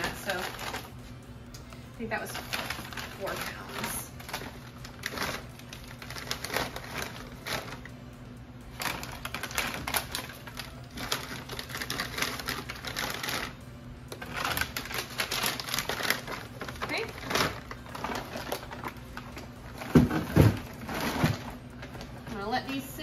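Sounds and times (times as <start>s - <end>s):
plastic bags rustling: 0.0s - 1.2s, 1.8s - 8.0s, 8.7s - 23.0s
frozen meat packages knocking: 14.2s - 22.4s.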